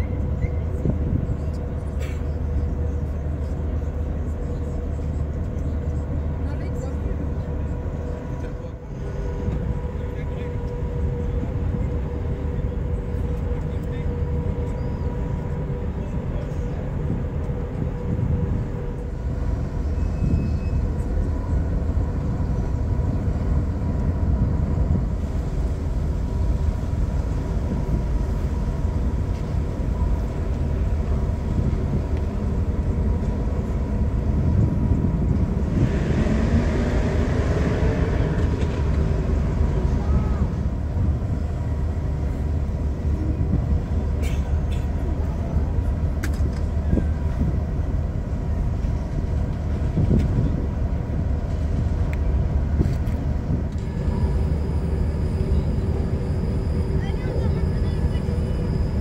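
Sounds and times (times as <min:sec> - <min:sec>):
ship engines rumbling: 0:00.0 - 0:59.0
rushing swell with rising tone: 0:35.3 - 0:40.0
faint steady tones: 0:50.8 - 0:59.0.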